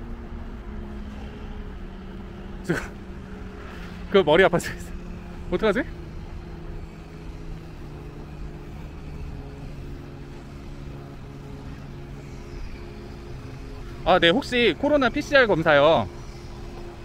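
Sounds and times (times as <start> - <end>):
motor humming: 0.0 - 17.0.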